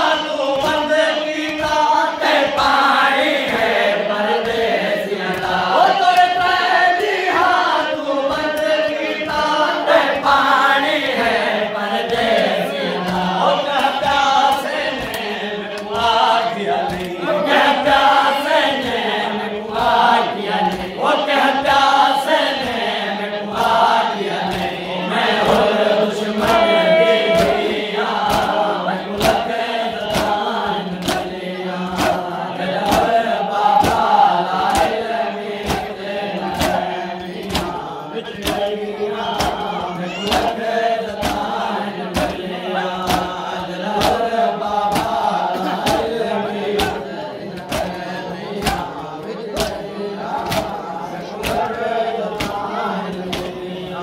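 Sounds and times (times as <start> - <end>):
men chanting in chorus: 0.0 - 54.0
chest-beating slaps: 25.4 - 35.0, 35.6 - 37.8, 39.4 - 43.4, 44.0 - 46.1, 47.6 - 48.0, 52.4 - 52.7.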